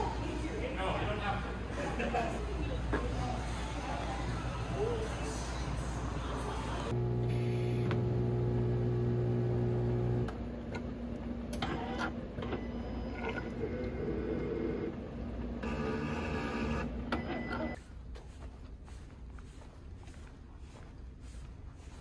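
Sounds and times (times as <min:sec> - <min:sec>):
coffee machine motor hum: 0:06.9 - 0:17.8
coffee machine running: 0:06.9 - 0:17.8.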